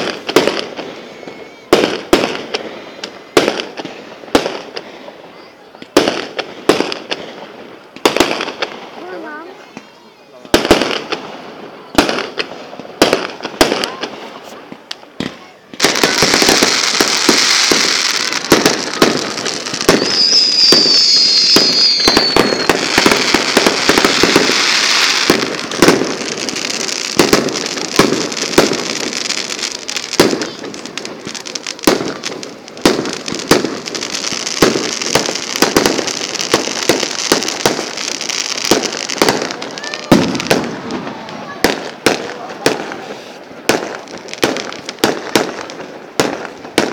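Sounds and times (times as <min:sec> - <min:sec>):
fireworks crackling and banging: 0:00.0 - 0:46.9
high wavering firework whistle: 0:00.6 - 0:03.4, 0:15.9 - 0:27.8.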